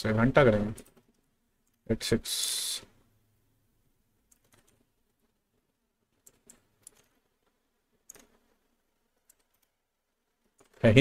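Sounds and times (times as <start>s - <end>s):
keyboard typing: 0.6s - 1.8s, 4.2s - 10.9s.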